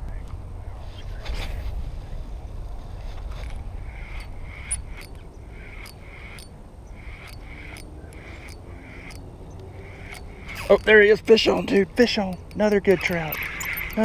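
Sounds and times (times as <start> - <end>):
wind rumble on microphone: 0.0 - 11.3
light clicks: 7.2 - 14.0
faint animal calls: 12.7 - 14.0.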